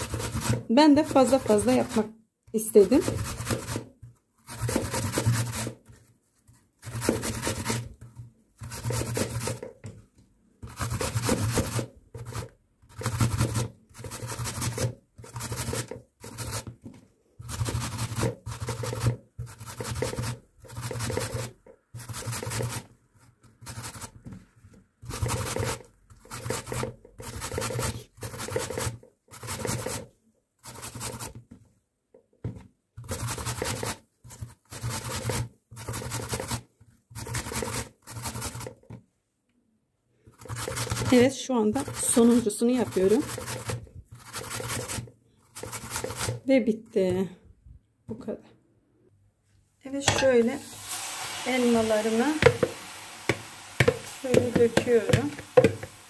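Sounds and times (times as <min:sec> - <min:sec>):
apples grated on metal grater: 0:00.0 - 0:05.7, 0:25.0 - 0:30.0, 0:40.4 - 0:46.5, 0:51.4 - 0:56.0.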